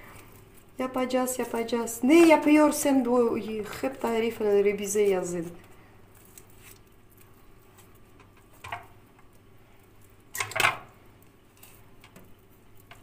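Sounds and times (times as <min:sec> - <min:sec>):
squishy rustles of skin peeling: 0:05.5 - 0:08.2.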